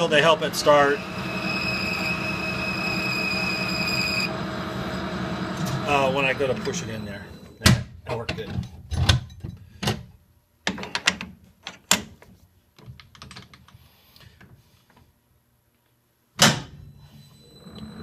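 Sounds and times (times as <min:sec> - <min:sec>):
metal clicks and knocks: 0:12.8 - 0:13.8.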